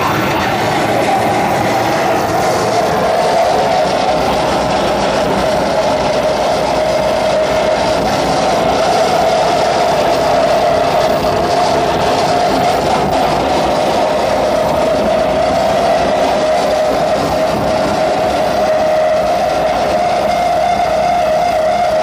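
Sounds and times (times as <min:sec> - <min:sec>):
distorted noise drone: 0:00.0 - 0:14.5.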